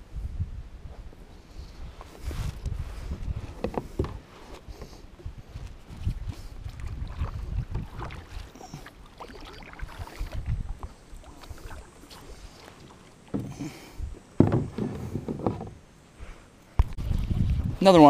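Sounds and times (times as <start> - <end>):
paddle strokes splashing: 6.0 - 14.0
knocks against kayak hull: 14.4 - 15.8.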